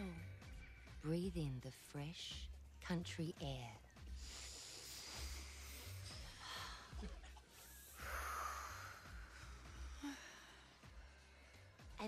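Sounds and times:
deep breathing: 4.1s - 7.0s, 7.6s - 12.0s.

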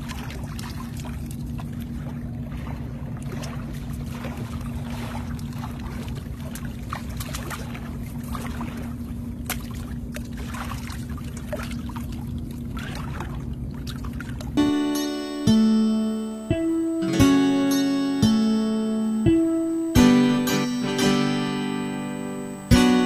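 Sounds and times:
boat engine humming: 13.5s - 23.0s.

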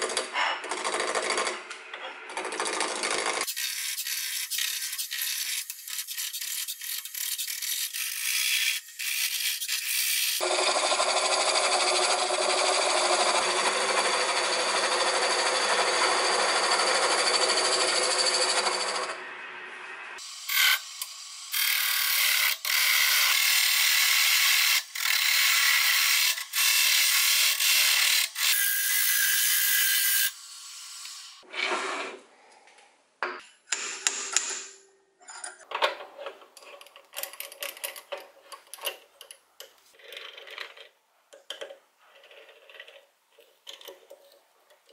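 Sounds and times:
metal clicks and rattles of chuck: 36.6s - 44.9s.

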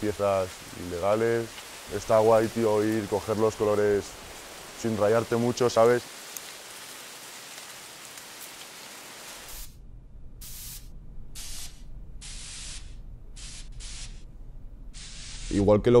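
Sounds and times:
steady background hiss: 0.0s - 16.0s
spray can hissing bursts: 9.4s - 9.8s, 10.4s - 14.2s, 15.0s - 15.6s.

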